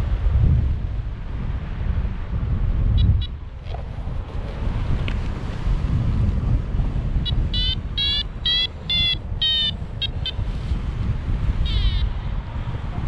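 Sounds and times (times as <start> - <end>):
airflow rumbling on microphone: 0.0 - 13.0
short electronic beeps: 7.2 - 10.4.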